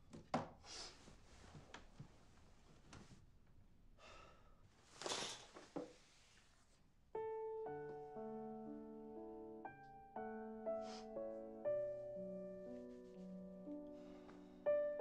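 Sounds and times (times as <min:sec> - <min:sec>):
gentle piano melody: 0:07.1 - 0:15.0.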